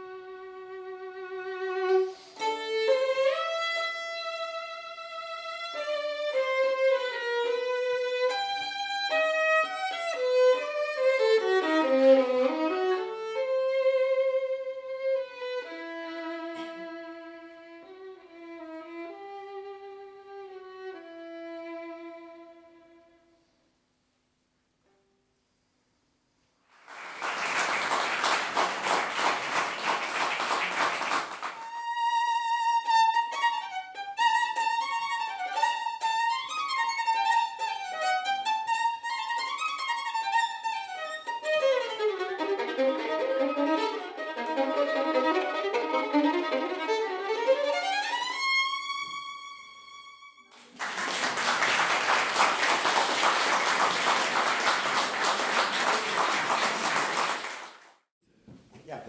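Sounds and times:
solo violin melody: 0:00.0 - 0:23.4, 0:31.5 - 0:50.6
audience applause: 0:26.8 - 0:31.7, 0:50.5 - 0:58.0.

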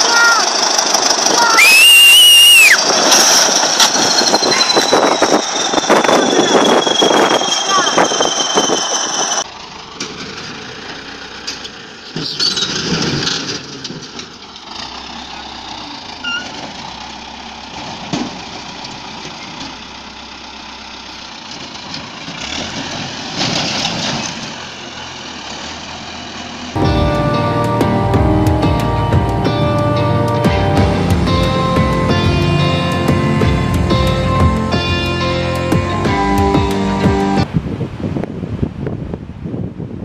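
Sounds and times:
diesel engines running: 0:00.0 - 0:37.6
high steady whine: 0:01.3 - 0:09.4.

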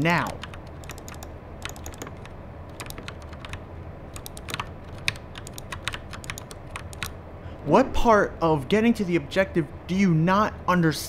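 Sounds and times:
steady low hum: 0:00.0 - 0:11.0
keyboard keys clacking: 0:00.2 - 0:07.2.

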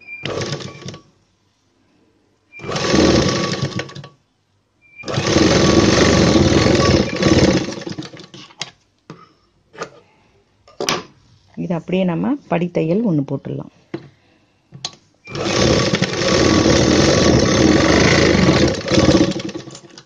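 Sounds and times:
sewing machine stitching: 0:00.0 - 0:01.1, 0:02.6 - 0:04.2, 0:05.0 - 0:08.5, 0:15.3 - 0:20.0.

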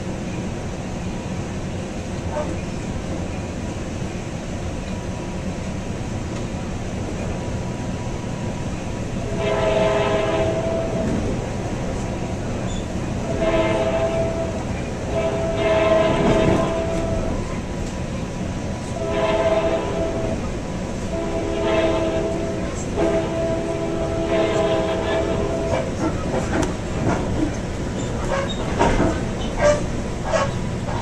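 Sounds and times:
train rumbling on rails: 0:00.0 - 0:31.0
train horn blasts: 0:09.2 - 0:11.3, 0:13.2 - 0:17.4, 0:19.0 - 0:26.0.

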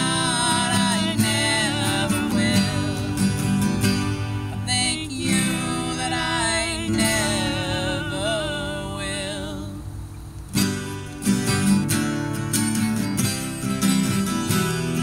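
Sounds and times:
person singing: 0:00.0 - 0:03.6, 0:04.5 - 0:09.9
acoustic guitars strummed: 0:00.0 - 0:15.0.

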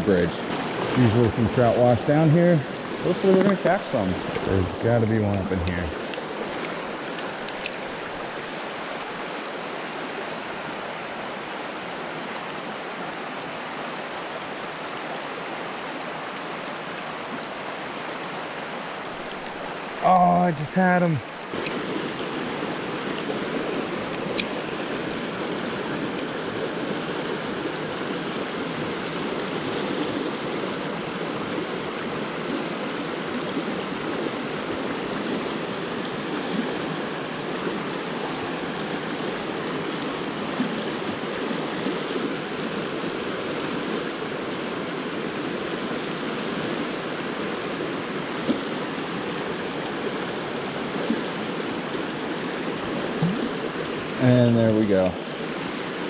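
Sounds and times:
creek rapids rushing over rocks: 0:00.0 - 0:56.0.

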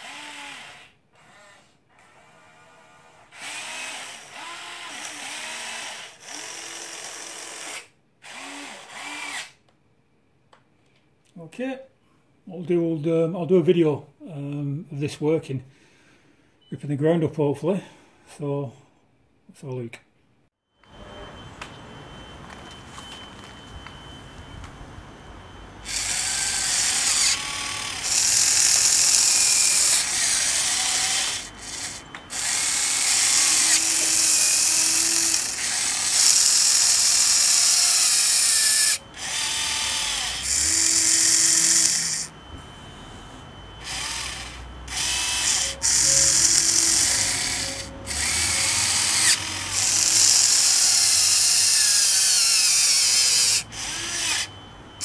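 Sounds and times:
toy excavator motors whining: 0:00.0 - 0:09.6, 0:25.8 - 0:55.0.

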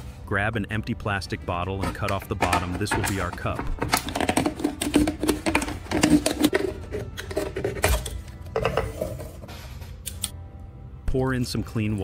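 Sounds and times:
plastic bottle crackling: 0:01.8 - 0:09.3.

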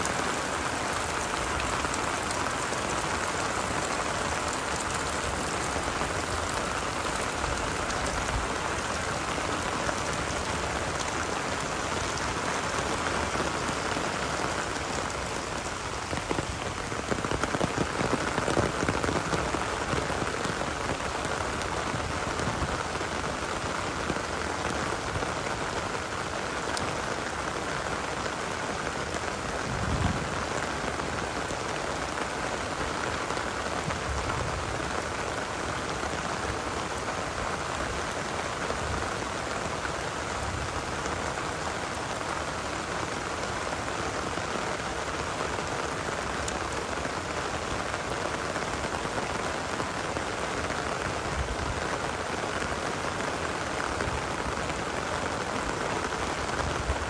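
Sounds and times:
heavy rain pattering: 0:00.0 - 0:57.0.

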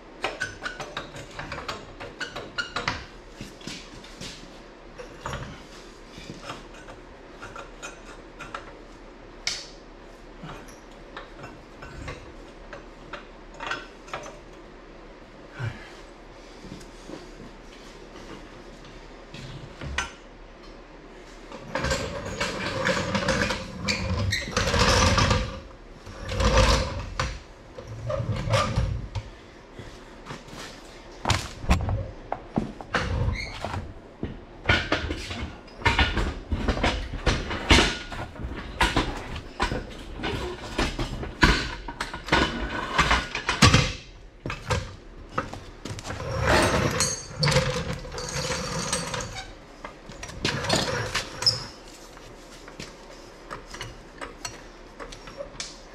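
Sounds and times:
metal clanks and knocks: 0:31.3 - 0:49.5.

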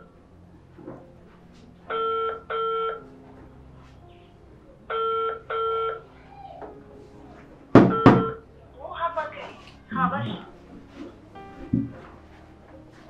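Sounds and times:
mobile phone ringing: 0:01.9 - 0:03.0, 0:04.9 - 0:06.0, 0:07.8 - 0:08.4
loud sharp knock: 0:07.8 - 0:08.3.

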